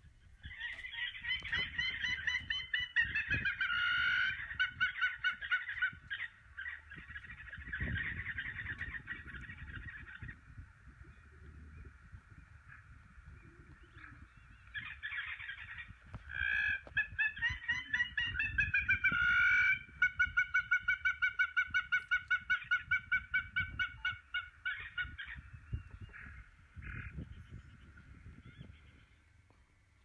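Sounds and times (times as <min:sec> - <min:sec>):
water bird honking: 0:13.7 - 0:25.4.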